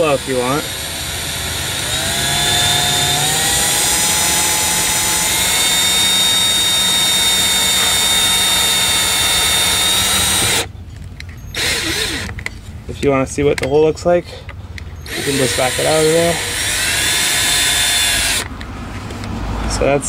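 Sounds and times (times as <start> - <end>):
cordless drill cutting with hole saw: 0.0 - 10.7, 11.5 - 12.3, 15.0 - 18.5.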